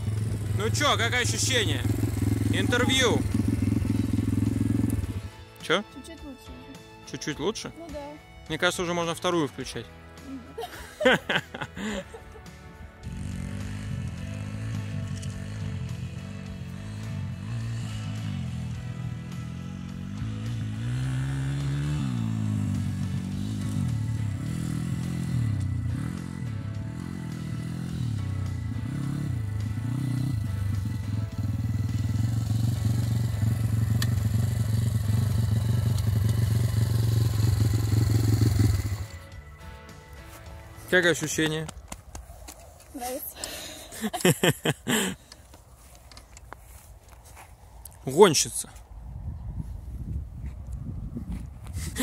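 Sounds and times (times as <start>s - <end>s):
motorbike engine running: 0.0s - 5.4s, 13.0s - 39.3s
background music: 0.0s - 46.1s
person laughing: 10.2s - 12.6s, 43.6s - 45.3s, 51.8s - 52.0s.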